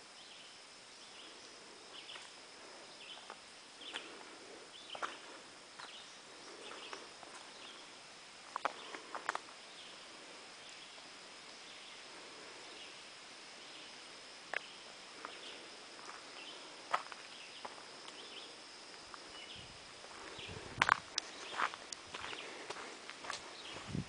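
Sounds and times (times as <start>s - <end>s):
faint chirps: 0.0s - 24.0s
steady high whine: 0.0s - 24.0s
footsteps on dirt trail: 3.0s - 7.6s, 15.2s - 18.0s, 19.0s - 24.0s.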